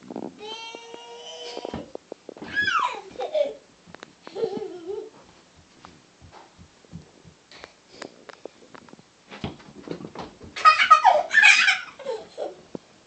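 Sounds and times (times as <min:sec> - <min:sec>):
soft thumps and knocks: 0:03.9 - 0:07.4, 0:08.7 - 0:10.6.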